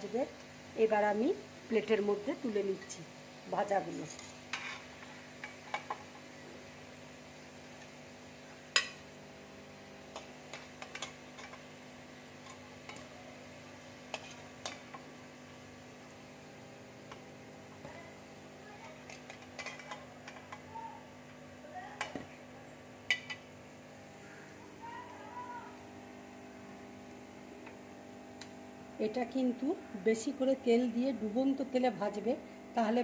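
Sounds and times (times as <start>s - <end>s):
food sizzling in hot oil: 0.0s - 24.0s.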